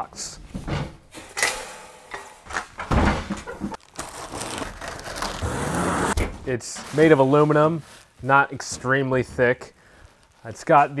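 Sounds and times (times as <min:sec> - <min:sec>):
cardboard box being torn open: 0:03.8 - 0:06.1.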